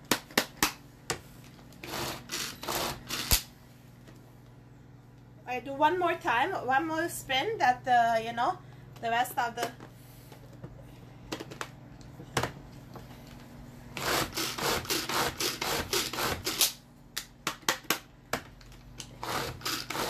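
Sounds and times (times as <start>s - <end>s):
food chopper blades rasping: 1.8s - 3.4s, 14.0s - 16.8s, 19.0s - 20.0s.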